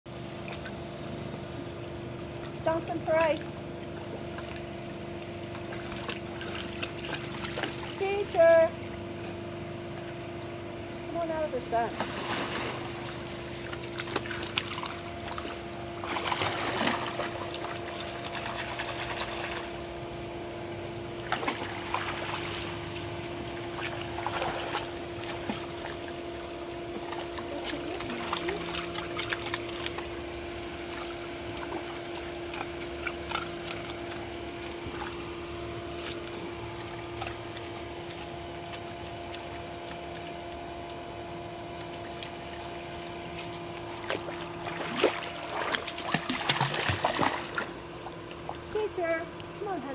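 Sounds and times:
steady hum: 0.1 - 49.9
water splashing and sloshing: 0.4 - 49.9.

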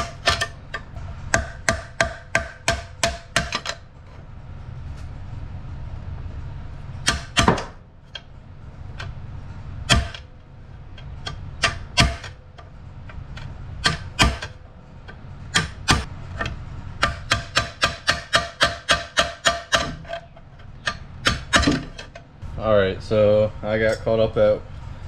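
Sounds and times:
hammer striking chisel on metal: 0.0 - 3.8, 7.0 - 8.3, 9.9 - 10.3, 11.0 - 12.7, 13.4 - 22.2.

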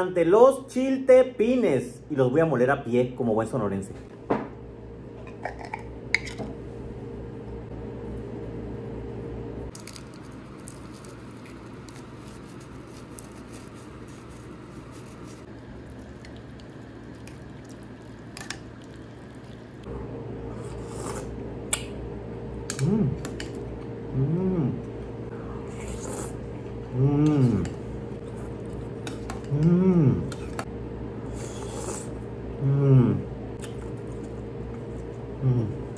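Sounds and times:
steady low hum: 0.0 - 35.9
dried chiles crackling when crushed: 9.7 - 19.8.

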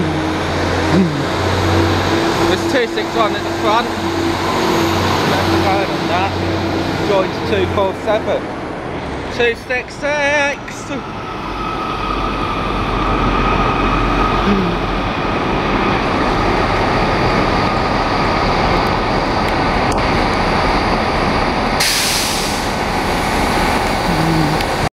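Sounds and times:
diesel train rumbling past: 0.0 - 24.9
train engine whine: 0.0 - 24.9
loud hiss: 21.8 - 24.3.

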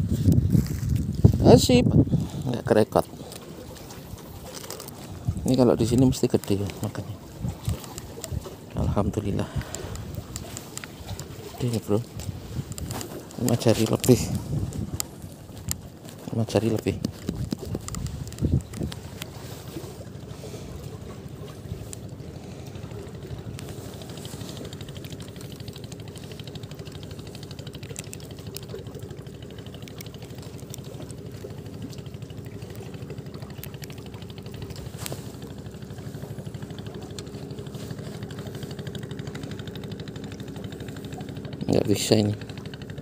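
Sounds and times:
boat engine running: 0.0 - 43.0.

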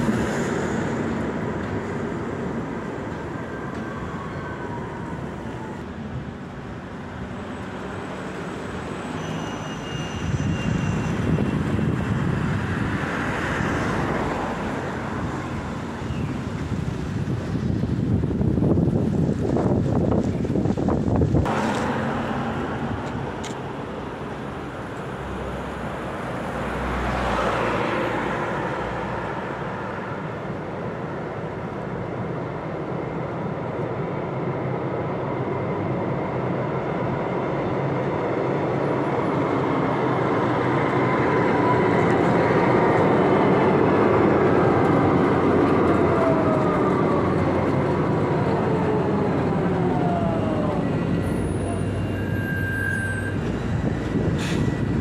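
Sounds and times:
tram wheels rumbling on rail: 0.0 - 55.0
road vehicle passing: 20.5 - 31.7.

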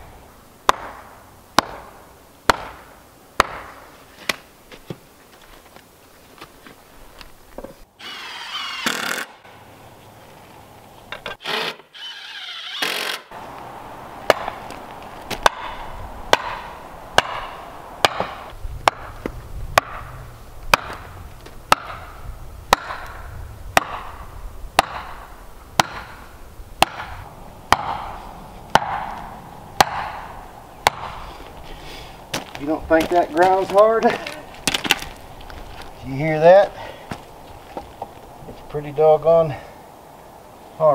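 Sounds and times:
hammer striking wooden stake: 0.6 - 5.0, 14.3 - 14.6, 15.3 - 20.1, 20.7 - 31.3.

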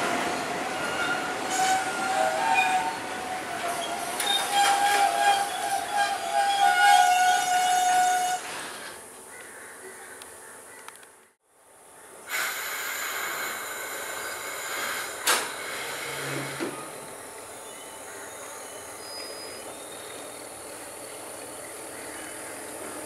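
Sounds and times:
train running noise: 0.0 - 9.3, 12.3 - 23.0
multi-tone train horn blast: 0.7 - 8.6.

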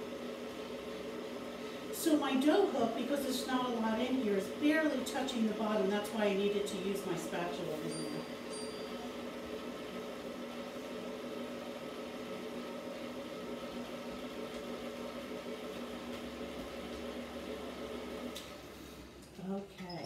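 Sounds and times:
stand mixer motor humming: 8.3 - 18.6.

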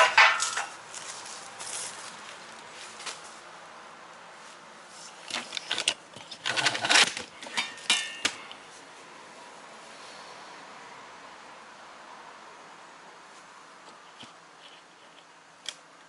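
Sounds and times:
metal tools clinking on tray: 6.6 - 8.3
short metallic ring: 7.5 - 8.3.

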